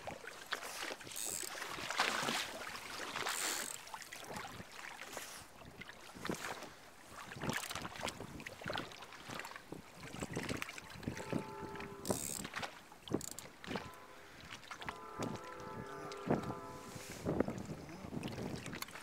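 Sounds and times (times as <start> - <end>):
waves slapping against boat: 0.0 - 19.0
wind on microphone: 6.2 - 19.0.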